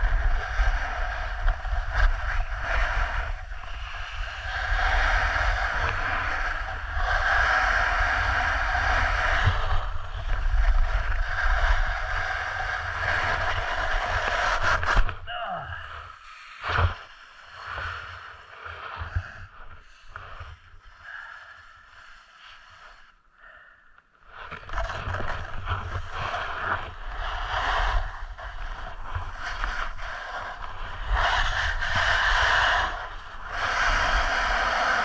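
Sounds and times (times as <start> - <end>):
wind rumbling on microphone: 0.0 - 21.8, 24.3 - 35.0
snowboard scraping on snow: 24.4 - 35.0.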